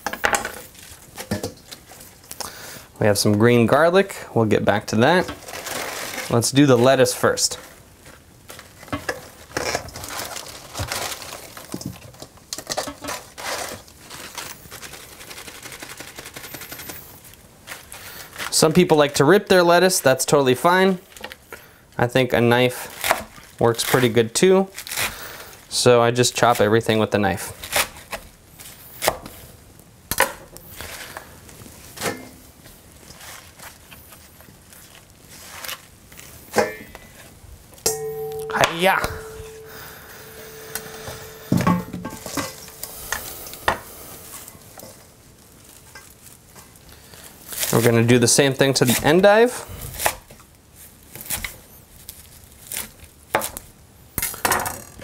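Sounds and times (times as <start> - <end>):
lettuce leaves rustling and snapping: 7.6 - 18.6, 22.8 - 25.2, 33.0 - 36.4, 44.3 - 48.2, 49.9 - 53.7.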